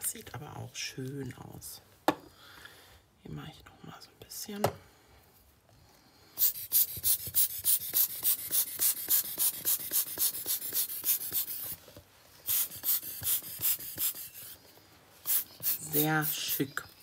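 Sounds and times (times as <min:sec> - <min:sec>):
short puffs of air: 0:06.2 - 0:11.8, 0:12.4 - 0:14.6, 0:15.2 - 0:16.6.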